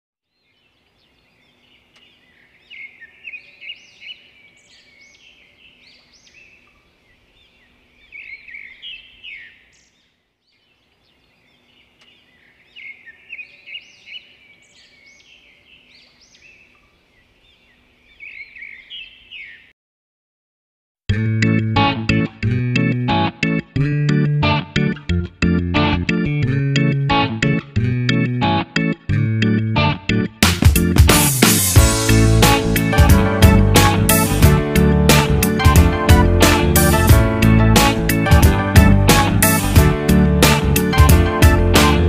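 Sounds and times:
birds chirping and warbling: 0.3 - 19.7.

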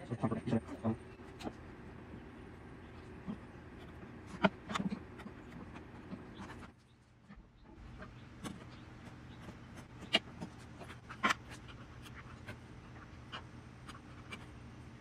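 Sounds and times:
chisel scraping wood: 7.9 - 14.6.

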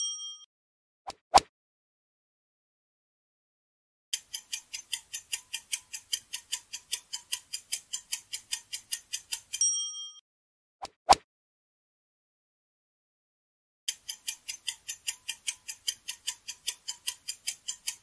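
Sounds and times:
bright bell ding: 0.0 - 0.5, 9.6 - 10.2
clock ticking fast: 4.2 - 9.6, 13.9 - 18.0.

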